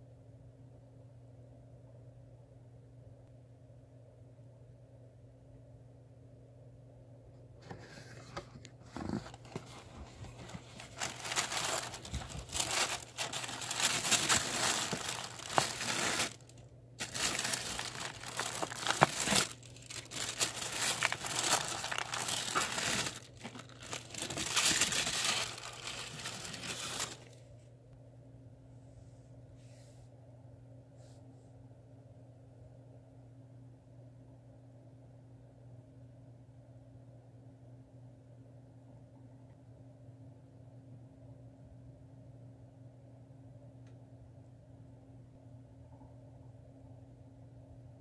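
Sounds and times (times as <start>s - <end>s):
tissue paper crinkling and rustling: 7.6s - 27.4s.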